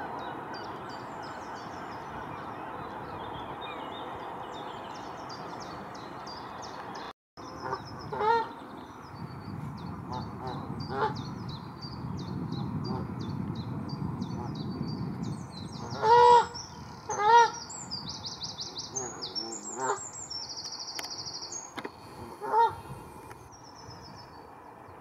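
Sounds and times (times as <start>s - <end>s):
songbirds chirping and trilling: 0.0s - 25.0s
geese honking: 19.0s - 20.0s.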